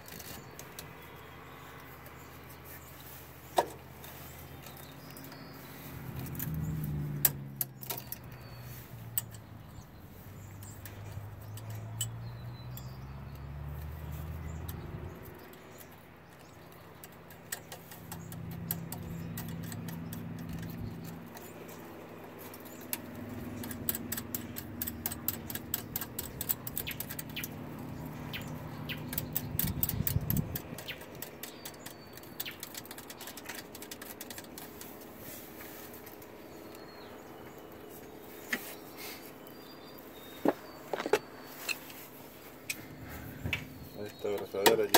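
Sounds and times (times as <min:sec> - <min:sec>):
metallic clicks and rattles: 0:06.0 - 0:35.2.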